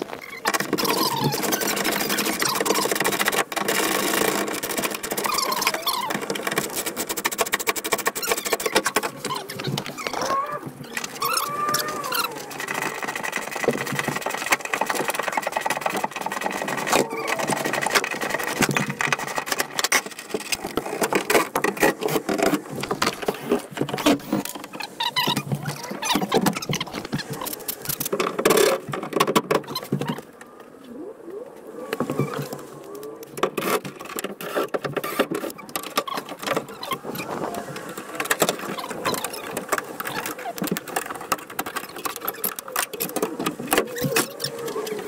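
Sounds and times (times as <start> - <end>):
hand tools clicking and rattling: 0.0 - 30.3
plastic trim squeaking: 0.0 - 30.4, 33.2 - 45.0.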